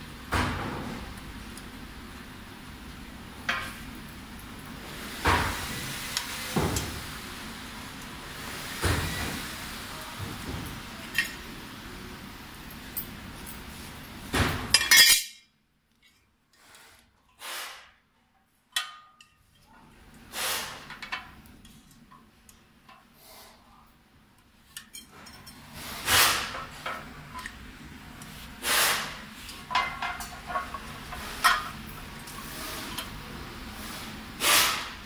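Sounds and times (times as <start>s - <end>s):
metal parts clinking and scraping: 14.8s - 16.2s, 29.5s - 31.8s.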